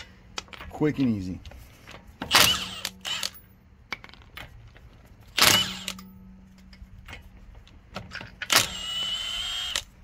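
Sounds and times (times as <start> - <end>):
impact wrench firing: 2.2 - 3.4, 5.4 - 6.1.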